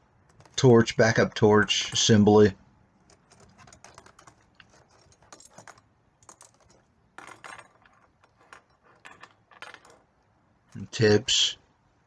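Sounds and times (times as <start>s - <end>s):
metal tools clinking in plastic tray: 1.6s - 2.2s.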